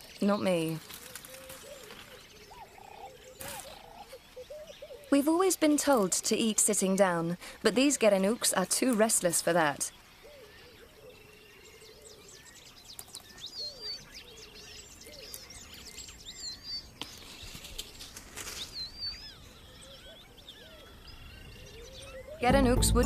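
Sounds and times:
birds chirping and calling: 0.0s - 23.0s.

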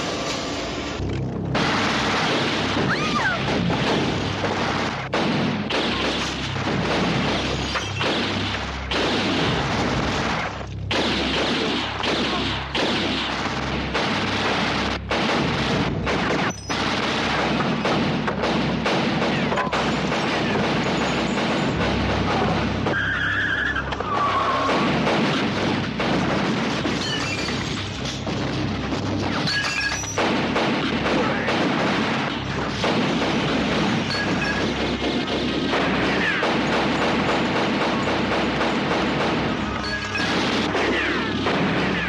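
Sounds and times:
heavy booms and crashes: 0.0s - 23.1s
gunfire: 1.5s - 42.0s.

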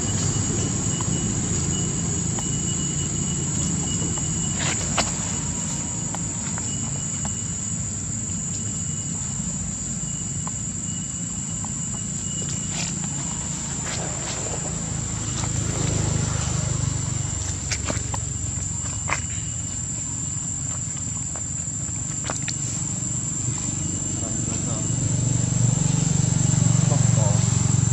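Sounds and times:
insects droning: 0.0s - 27.9s
rustling on dry leaves: 0.1s - 7.1s, 12.4s - 24.7s.

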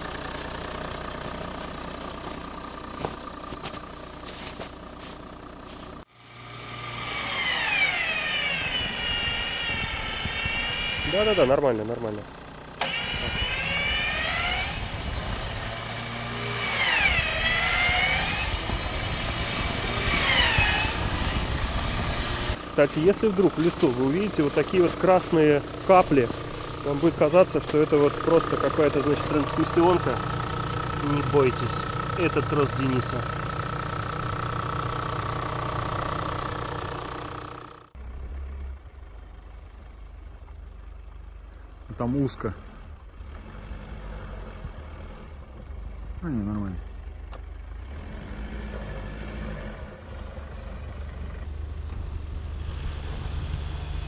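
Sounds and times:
diesel engine under load: 0.0s - 54.0s
high whine: 6.1s - 12.0s.

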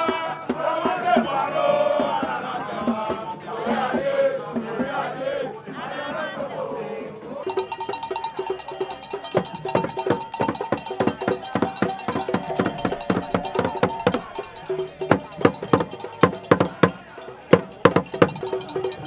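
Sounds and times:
barrel drum beaten with stick: 7.4s - 19.0s
steady held tone: 7.4s - 19.0s.

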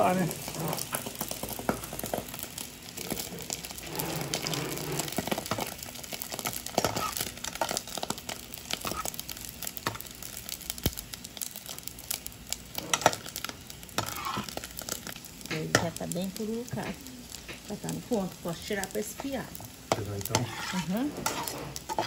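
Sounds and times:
metal skimmer stirring in pan: 0.0s - 9.2s, 12.7s - 16.0s, 17.6s - 22.0s
pork rind crackling in hot fat: 0.0s - 22.0s.

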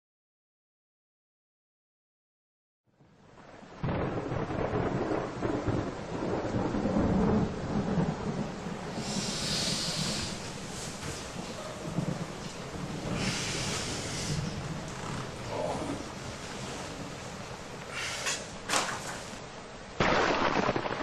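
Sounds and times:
hissing swell: 8.9s - 11.1s, 13.0s - 14.7s.

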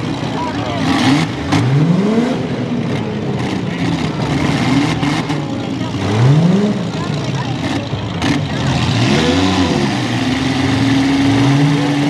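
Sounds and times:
car engines revving: 0.0s - 12.0s
crowd chatter: 0.0s - 12.0s.

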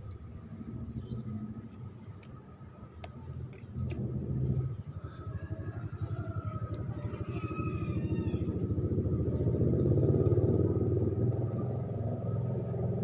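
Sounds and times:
motorcycle engine running: 3.0s - 13.0s.

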